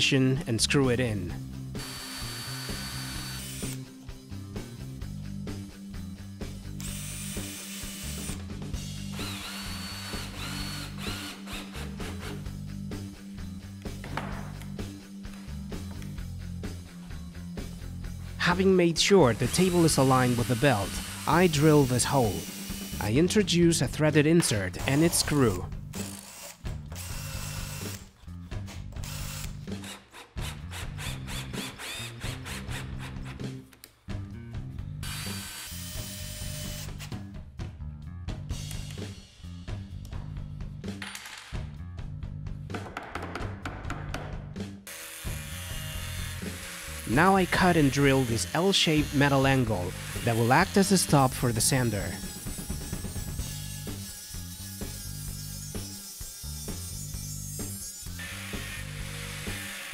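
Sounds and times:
soft background music: 0:00.0 - 0:59.9
cordless drill motor whining: 0:01.8 - 0:03.8, 0:06.8 - 0:08.4, 0:09.1 - 0:12.4, 0:29.0 - 0:29.6, 0:35.0 - 0:37.1, 0:44.9 - 0:47.1, 0:58.2 - 0:59.9.

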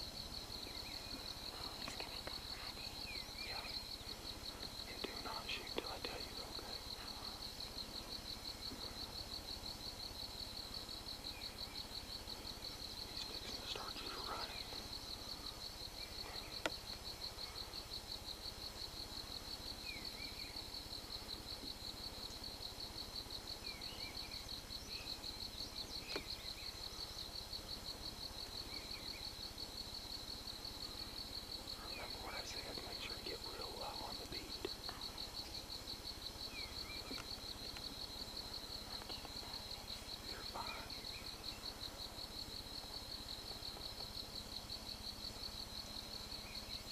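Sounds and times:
insect trill: 0:00.0 - 0:46.9
faint bird chirps: 0:00.6 - 0:07.6, 0:13.1 - 0:16.7, 0:31.7 - 0:35.6, 0:39.0 - 0:41.7.

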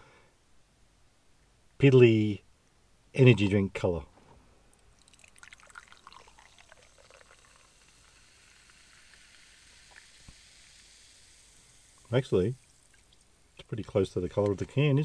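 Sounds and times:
drink splashing: 0:04.9 - 0:14.6
fizzing bubbles: 0:04.9 - 0:14.6.

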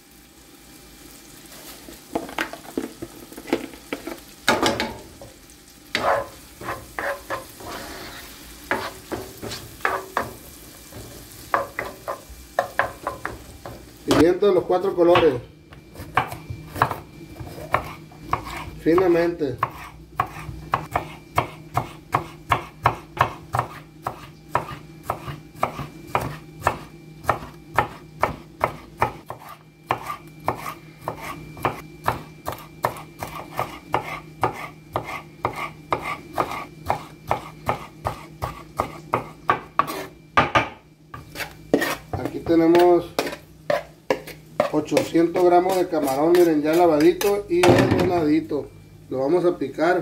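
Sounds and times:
knife chopping on wooden board: 0:08.7 - 0:10.4, 0:15.1 - 0:48.1.

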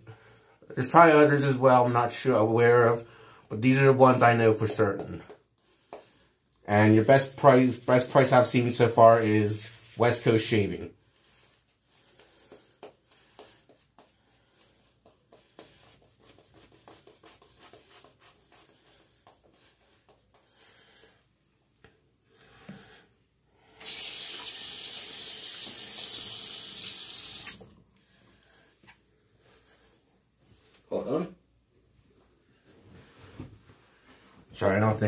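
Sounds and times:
shaving brush scratching on stubble: 0:06.8 - 0:10.6, 0:13.2 - 0:20.4
sink tap running: 0:23.8 - 0:27.7.

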